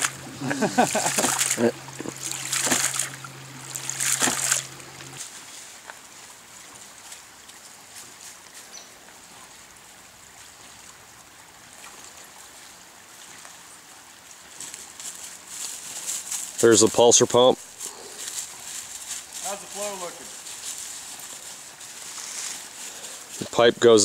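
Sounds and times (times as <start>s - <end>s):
water spurting and splashing: 0.0s - 17.0s
faint trickle of creek water: 0.0s - 24.0s.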